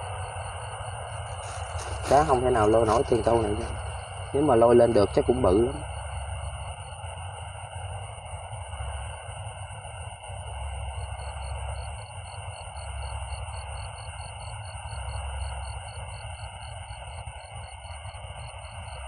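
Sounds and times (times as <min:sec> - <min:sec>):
low rumble: 0:00.0 - 0:12.1
cricket chirping: 0:00.0 - 0:19.0
insect trills: 0:00.0 - 0:19.0.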